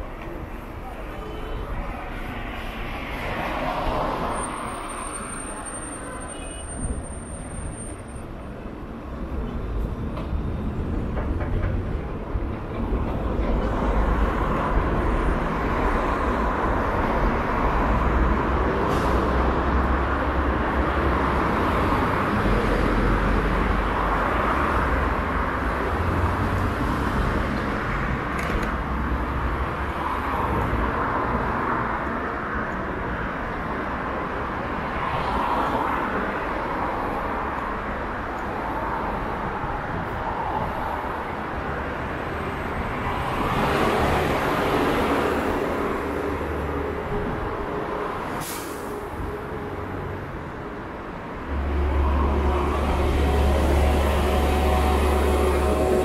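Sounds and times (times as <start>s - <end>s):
vehicle rumble: 0.0s - 56.0s.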